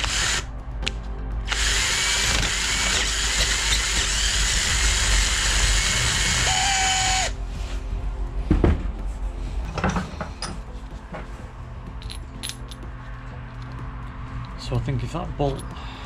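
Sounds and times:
electric drill boring steel: 0:00.0 - 0:00.5, 0:01.5 - 0:07.4
steady whine: 0:00.0 - 0:11.8.

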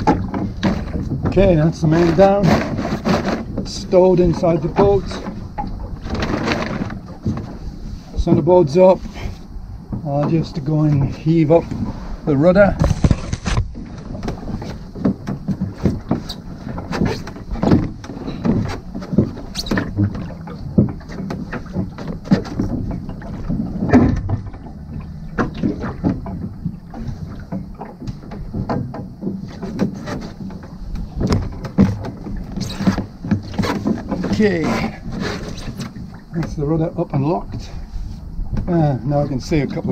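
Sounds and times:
wooden boat fittings knocking: 0:00.0 - 0:07.6, 0:12.6 - 0:36.6
water washing around hull: 0:00.0 - 0:39.9.

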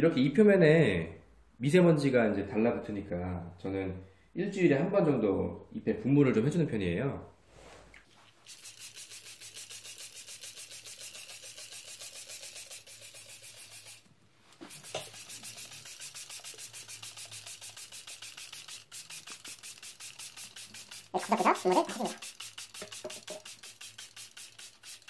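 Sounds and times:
spray bottle squirts: 0:07.9 - 0:25.0.

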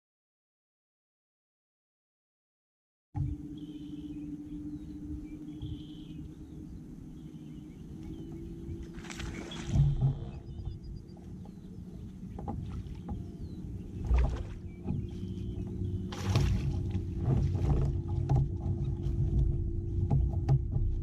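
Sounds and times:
low hum and rumble: 0:03.2 - 0:21.0
knocks against kayak: 0:14.0 - 0:21.0.

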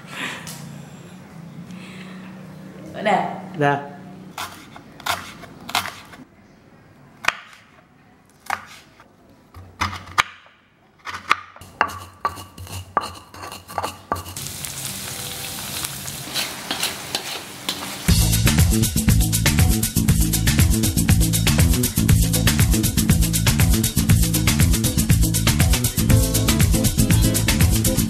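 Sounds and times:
knife chopping on wooden board: 0:04.4 - 0:06.2, 0:07.2 - 0:07.8, 0:08.4 - 0:09.0, 0:09.6 - 0:14.4
pestle grinding in stone mortar: 0:04.4 - 0:06.2, 0:11.0 - 0:14.4
metal spatula scraping wok: 0:11.6 - 0:18.1
paste sizzling in hot oil: 0:11.9 - 0:18.3
upbeat music with steady beat: 0:18.1 - 0:28.0.

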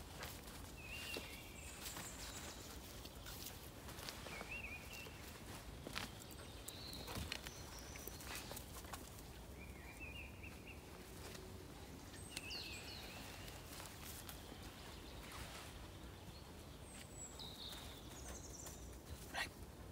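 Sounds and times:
bird chirps: 0:12.1 - 0:19.4.

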